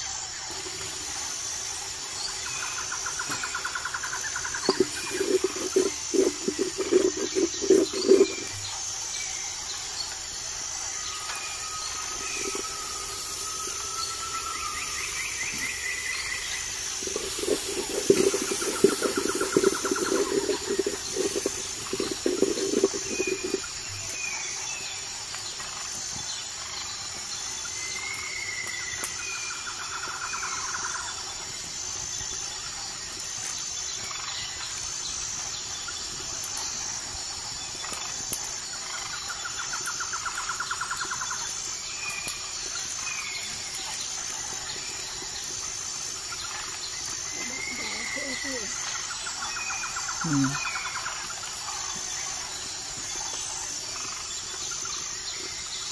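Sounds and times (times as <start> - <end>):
insects chirping trill: 0.0 - 55.9
buzzing trills: 4.0 - 8.8, 16.5 - 24.0
metal spatula scraping a pot: 4.6 - 8.5, 17.0 - 23.6.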